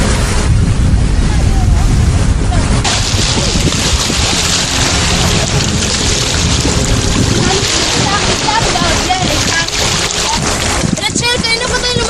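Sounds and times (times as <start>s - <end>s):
wind buffeting microphone: 0.0s - 12.0s
waves washing onto pebbles: 2.8s - 12.0s.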